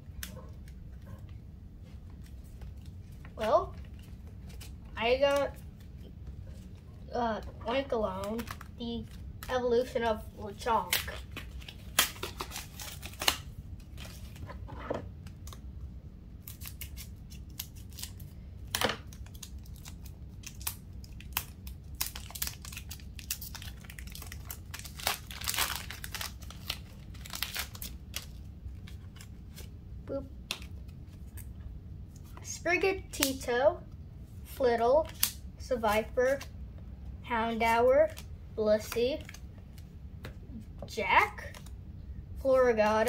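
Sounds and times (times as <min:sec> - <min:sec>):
foil wrapper tearing and crinkling: 0:08.2 - 0:09.5, 0:10.8 - 0:14.4, 0:16.4 - 0:29.7.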